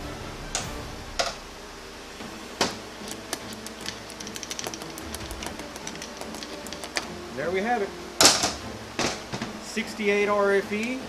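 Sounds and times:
small metal ticks and clicks: 3.0s - 7.1s
screwdriver clicking on metal: 3.1s - 7.1s.

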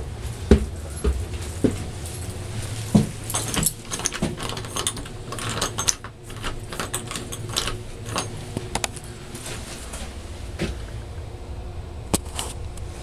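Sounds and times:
low handling rumble: 0.0s - 13.0s
light clicks and knocks: 0.5s - 10.9s.

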